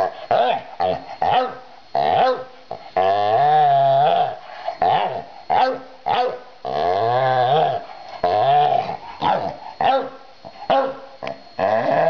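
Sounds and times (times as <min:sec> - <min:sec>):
dog growling: 0:00.0 - 0:12.0
dog barking: 0:01.3 - 0:01.6, 0:02.2 - 0:02.5, 0:05.6 - 0:06.4, 0:09.2 - 0:11.4.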